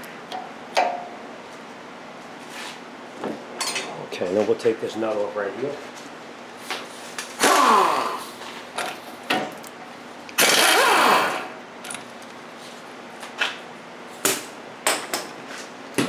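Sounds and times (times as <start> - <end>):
power tool bursts: 7.4 - 8.3, 10.4 - 11.6.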